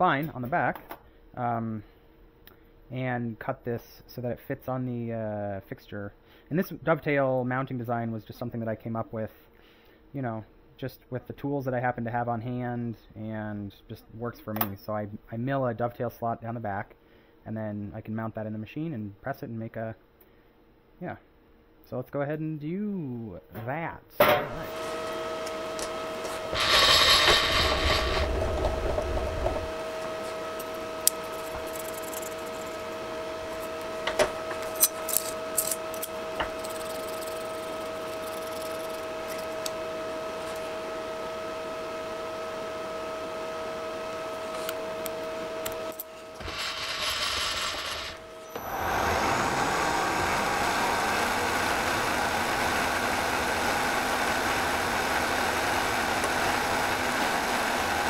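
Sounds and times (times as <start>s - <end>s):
milling machine whine: 24.5s - 58.0s
short noisy bursts: 26.1s - 34.0s, 46.2s - 52.8s.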